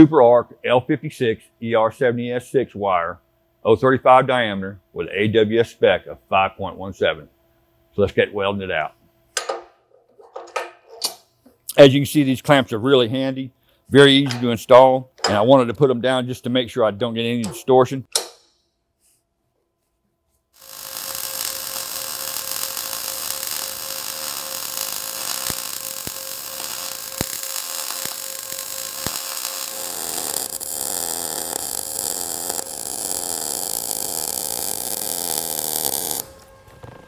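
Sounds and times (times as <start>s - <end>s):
welding arc: 20.6s - 36.4s.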